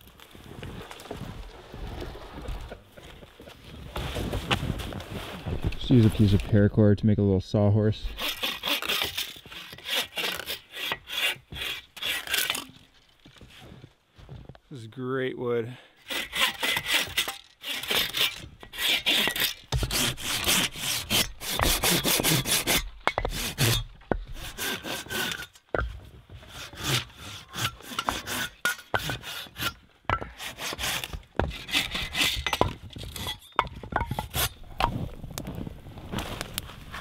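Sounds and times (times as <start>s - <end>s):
hand saw rasping through wood: 8.1s - 12.7s, 16.0s - 25.6s, 26.3s - 33.5s.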